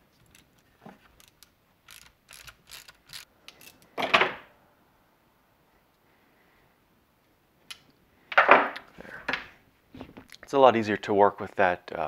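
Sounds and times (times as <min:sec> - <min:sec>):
socket wrench clicking: 0:01.2 - 0:03.9.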